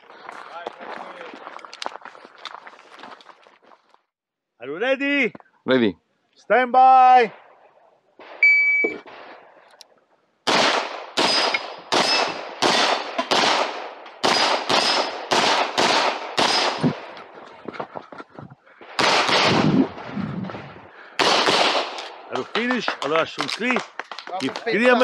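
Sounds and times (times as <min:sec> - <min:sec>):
shot timer beep: 0:08.4 - 0:09.0
pistol shots: 0:10.5 - 0:17.0, 0:18.9 - 0:19.8, 0:21.2 - 0:24.2.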